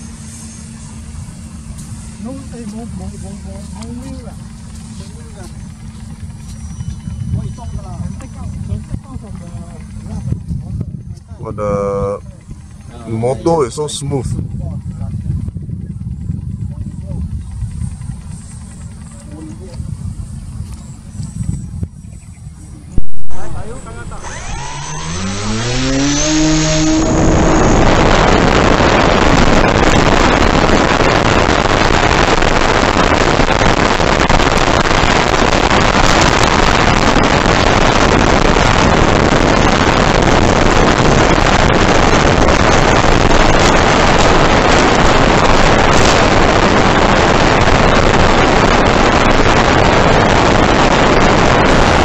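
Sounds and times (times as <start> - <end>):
model plane motor and propeller: 0.0 - 52.0
rush of air: 23.0 - 52.0.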